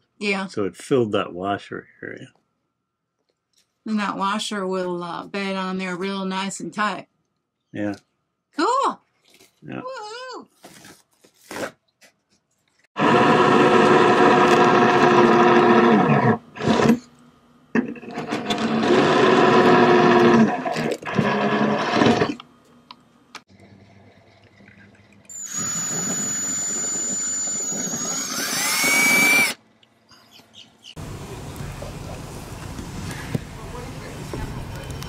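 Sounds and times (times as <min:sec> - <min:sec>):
cordless drill boring: 0:13.0 - 0:17.0, 0:18.2 - 0:22.4, 0:25.3 - 0:29.6.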